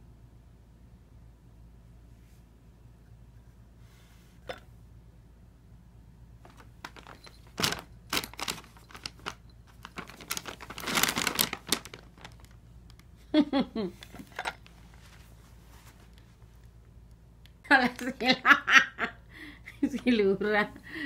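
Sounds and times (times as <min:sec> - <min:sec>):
paper bag crinkling: 0:06.4 - 0:12.6
person's voice: 0:19.8 - 0:21.0.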